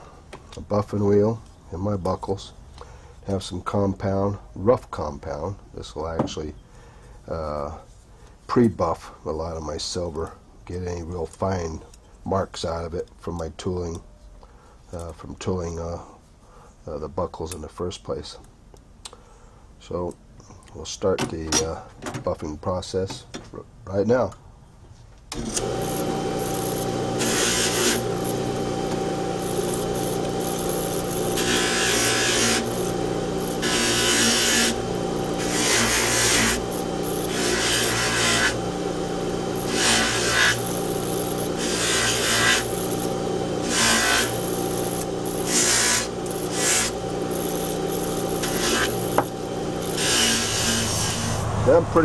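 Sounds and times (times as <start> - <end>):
buffing machine running: 25.3 - 52.0
metal rubbing on buffing wheel: 25.6 - 51.4.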